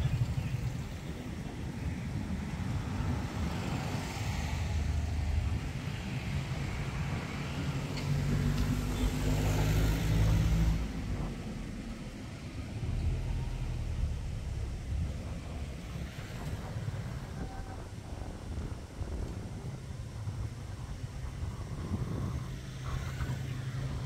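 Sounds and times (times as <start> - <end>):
vehicle engine passing by: 3.0 - 17.7, 21.3 - 24.0
steady low rumble: 10.4 - 24.0.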